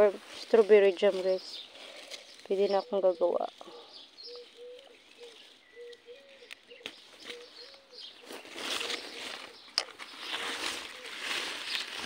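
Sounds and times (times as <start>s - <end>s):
leaves rustling and crackling: 0.0s - 12.0s
dove cooing: 2.6s - 12.0s.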